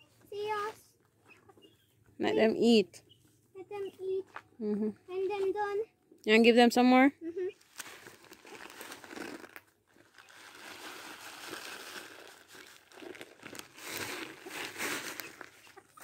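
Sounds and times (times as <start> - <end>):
plastic bag crinkling: 7.6 - 16.0.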